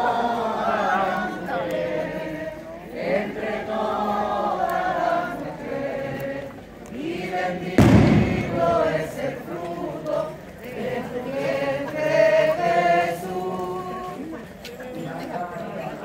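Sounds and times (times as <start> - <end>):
crowd singing in unison: 0.0 - 14.4
loud bump on microphone: 7.8 - 9.3.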